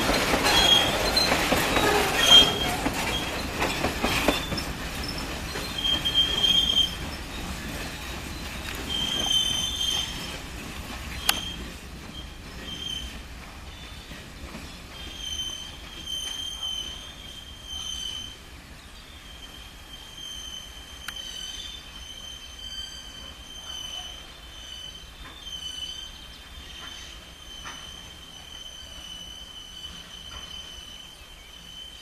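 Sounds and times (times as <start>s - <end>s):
low train rumble: 0.0s - 32.0s
train wheels squealing on rails: 0.0s - 32.0s.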